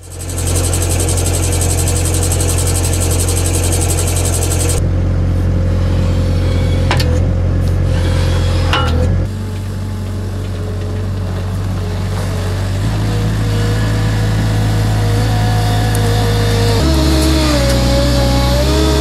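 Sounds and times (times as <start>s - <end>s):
fast high rattle: 0.0s - 4.8s
loader engine running: 0.0s - 19.0s.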